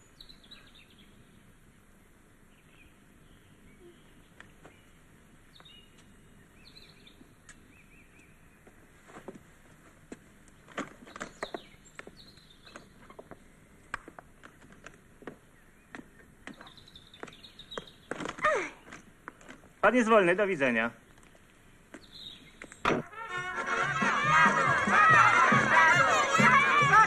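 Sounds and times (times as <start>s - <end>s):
bird chirps: 15.5s - 18.1s, 21.9s - 22.9s.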